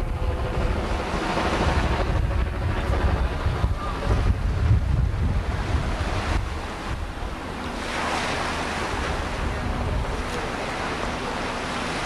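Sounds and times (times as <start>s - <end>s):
wind rumbling on microphone: 0.0s - 12.0s
water lapping: 5.3s - 12.0s.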